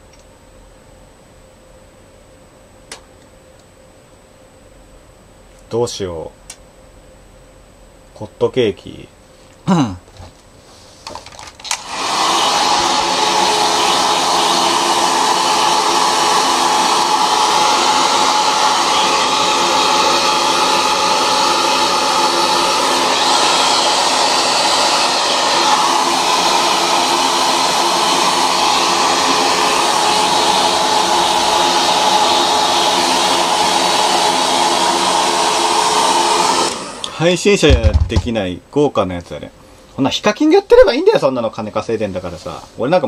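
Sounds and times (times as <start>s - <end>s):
hair dryer running: 11.6s - 38.3s.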